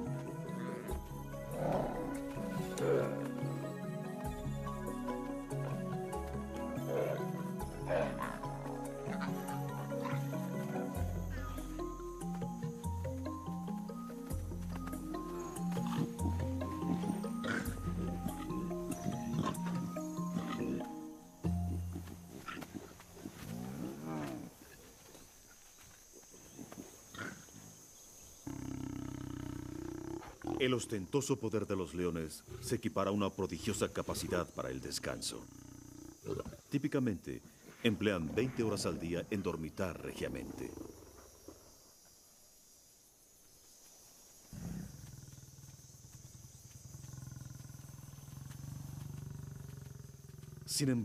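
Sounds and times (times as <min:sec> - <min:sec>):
lion calling: 0:00.0 - 0:24.8.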